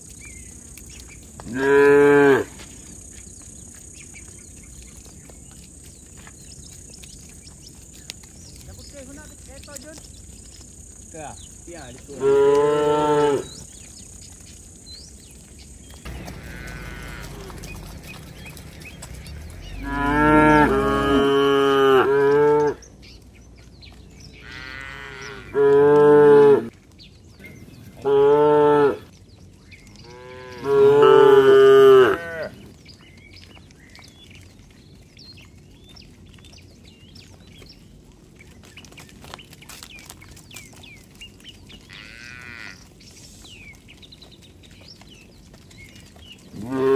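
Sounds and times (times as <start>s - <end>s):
cattle mooing: 12.1s - 13.5s, 16.1s - 22.8s, 24.4s - 26.7s, 28.0s - 29.1s, 30.0s - 32.6s, 41.9s - 42.8s, 46.6s - 46.9s.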